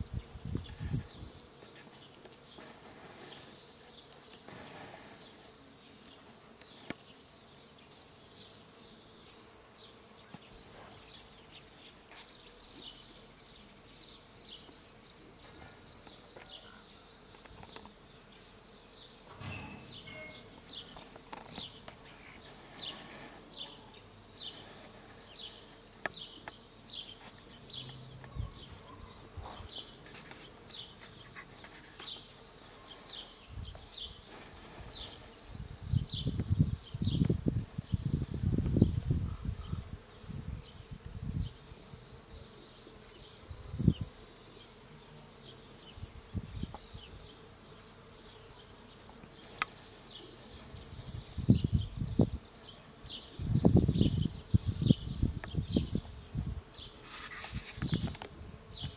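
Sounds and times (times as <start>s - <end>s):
insects buzzing: 0.0s - 58.9s
short high chirps: 19.6s - 20.6s.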